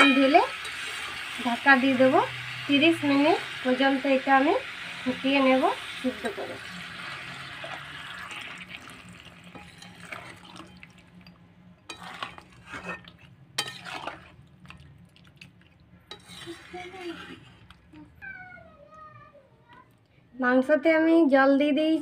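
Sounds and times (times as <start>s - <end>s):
spatula scraping a pan: 0.0s - 3.5s, 5.1s - 10.9s, 11.9s - 14.4s, 16.1s - 17.9s
water pouring into a pan: 0.3s - 11.0s.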